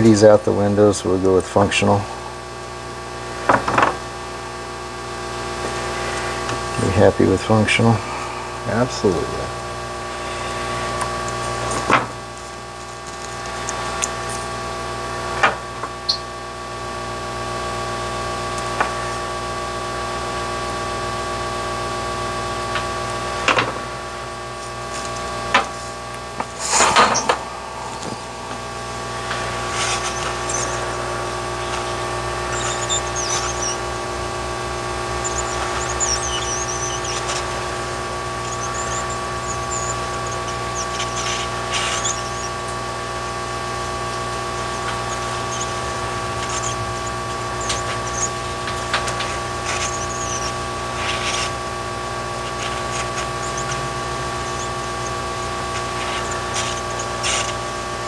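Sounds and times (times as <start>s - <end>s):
heat gun blower humming: 0.0s - 58.0s
faint high chirps: 32.5s - 33.8s, 35.2s - 37.4s, 38.4s - 40.9s, 49.8s - 50.6s.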